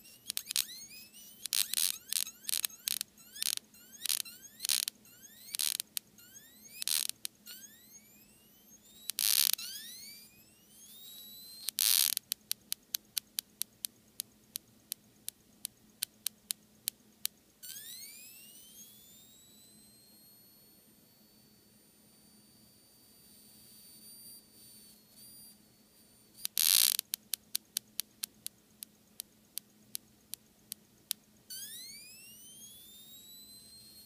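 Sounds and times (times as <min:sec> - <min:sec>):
high-voltage driver whining: 0:00.0 - 0:12.2, 0:17.6 - 0:27.3, 0:31.5 - 0:34.0
sharp electrical snaps: 0:00.0 - 0:15.0, 0:26.4 - 0:34.0.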